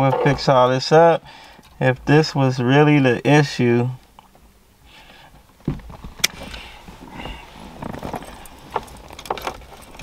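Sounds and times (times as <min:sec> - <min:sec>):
wires and tools rustling: 0:05.4 - 0:10.0.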